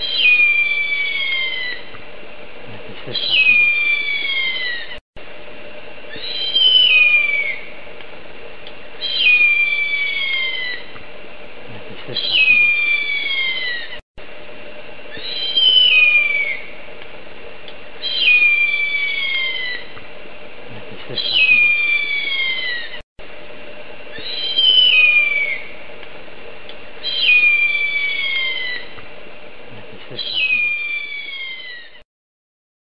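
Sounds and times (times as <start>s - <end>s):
eagle whistled calls: 0.0s - 1.9s, 3.0s - 5.0s, 6.1s - 7.7s, 9.0s - 11.0s, 12.1s - 14.0s, 15.1s - 16.8s, 18.0s - 20.0s, 21.1s - 23.0s, 24.1s - 25.8s, 27.0s - 29.0s, 30.1s - 32.0s
faint steady hum: 0.0s - 32.0s.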